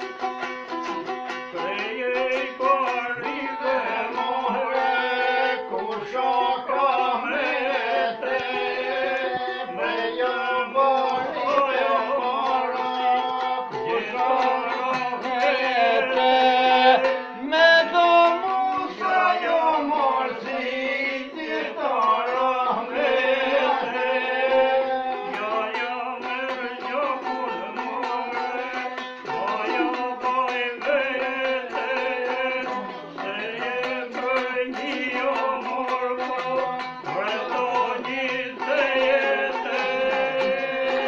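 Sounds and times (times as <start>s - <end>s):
man singing: 0.1s - 41.0s.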